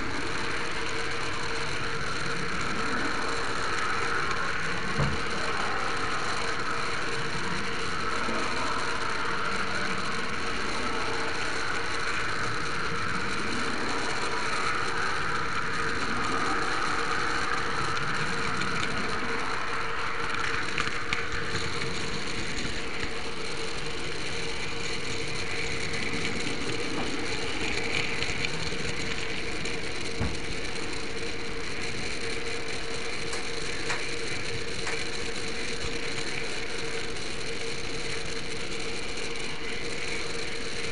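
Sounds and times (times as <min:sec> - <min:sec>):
model train whirr and rattle: 0:00.0 - 0:40.9.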